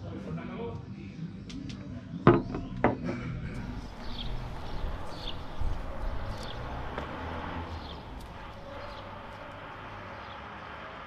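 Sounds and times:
steady low rumble: 3.4s - 9.8s
small birds chirping: 3.5s - 10.4s.

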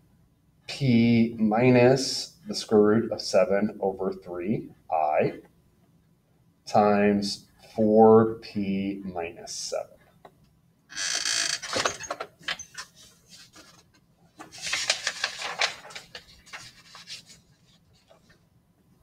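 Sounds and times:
paper rustling: 12.6s - 18.5s.

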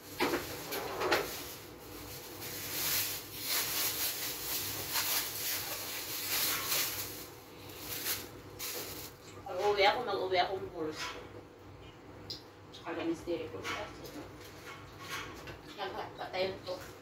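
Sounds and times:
plastic rustling and crinkling: 0.0s - 10.0s.

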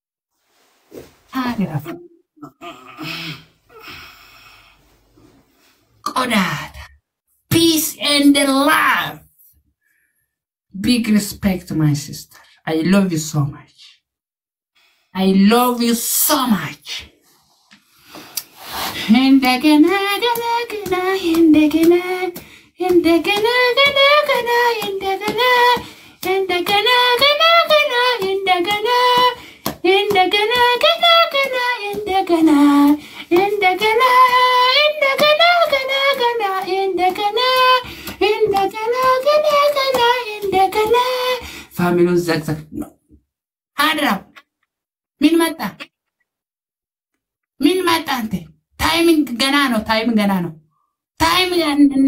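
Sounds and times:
person singing unaccompanied: 19.0s - 41.5s.

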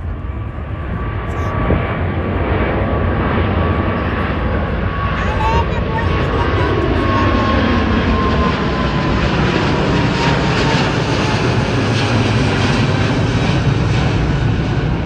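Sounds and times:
airliner jet engines rumbling: 0.0s - 15.0s.

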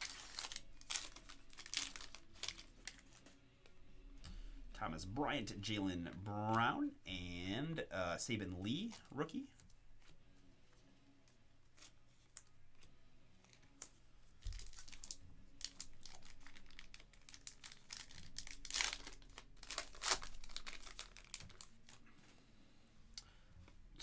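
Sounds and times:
plastic wrapper crinkling: 0.0s - 3.4s, 8.4s - 10.2s, 11.7s - 22.1s.

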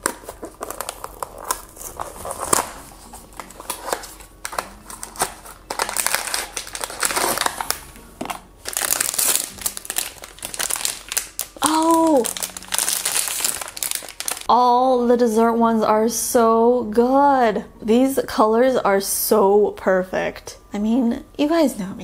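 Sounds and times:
cardboard box tearing: 0.0s - 7.8s
foil bag crinkling: 0.0s - 14.5s.

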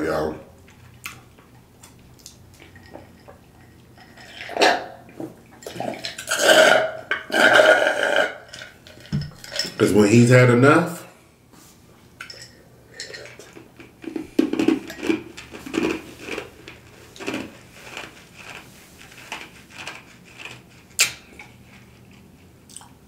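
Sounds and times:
person chewing food: 0.6s - 4.6s, 13.2s - 23.0s
lip smack: 21.0s - 21.2s.

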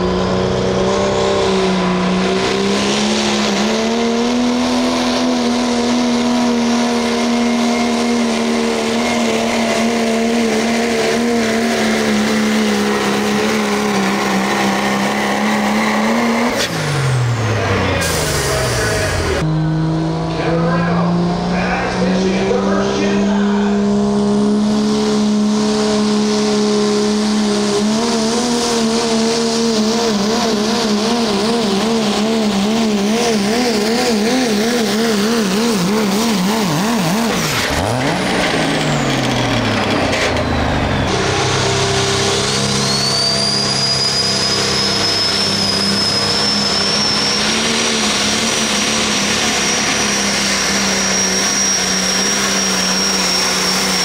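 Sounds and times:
pickup diesel engine under load: 0.0s - 54.0s
tractor engine running hard: 0.0s - 54.0s
high turbo whistle: 40.8s - 54.0s.

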